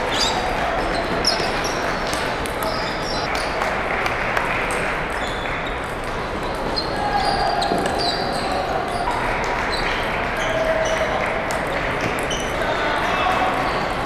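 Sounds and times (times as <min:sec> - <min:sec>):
hubbub of hall: 0:00.0 - 0:14.0
people talking: 0:00.0 - 0:14.0
table tennis balls clicking: 0:04.7 - 0:07.0.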